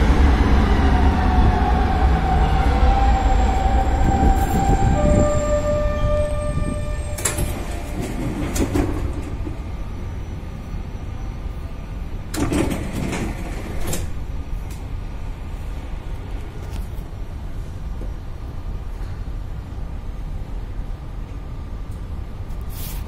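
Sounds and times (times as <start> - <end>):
low hum of standing tram: 0.0 - 23.0
tram door clunk: 3.6 - 10.3, 12.2 - 14.9
door rattling with knocks: 12.3 - 14.2.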